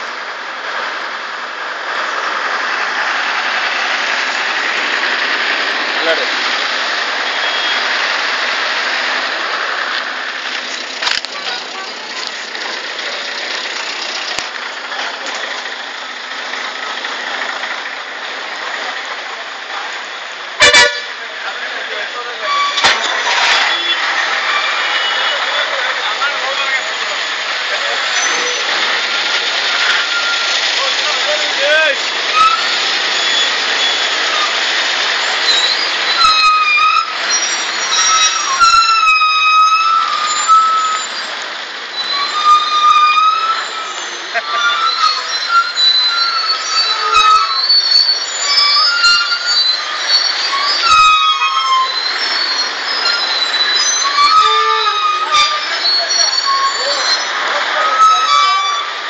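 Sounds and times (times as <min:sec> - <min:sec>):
buses and lorries idling: 0:00.0 - 0:59.0
vehicle horn: 0:20.6 - 0:21.2.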